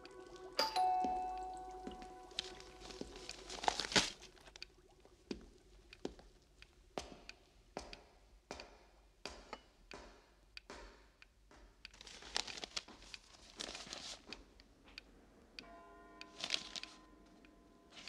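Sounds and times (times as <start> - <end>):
newspaper rustling and crinkling: 2.3 - 4.6, 11.9 - 14.6, 16.3 - 17.1.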